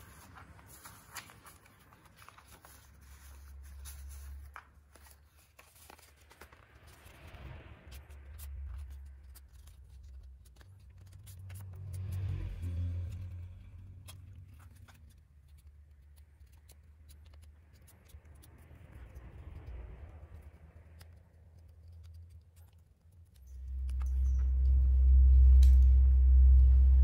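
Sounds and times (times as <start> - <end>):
paper rustling and folding: 0.0 - 19.7
low background rumble: 0.0 - 27.0.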